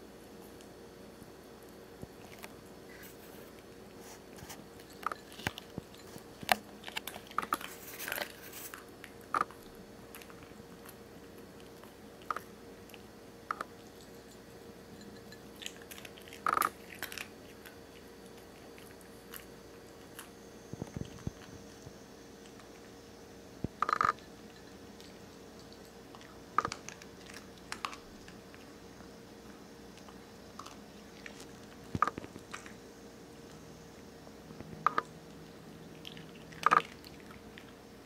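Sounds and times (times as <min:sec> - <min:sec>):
dog crunching dry kibble: 0:01.6 - 0:21.8, 0:23.8 - 0:28.8, 0:29.9 - 0:32.8.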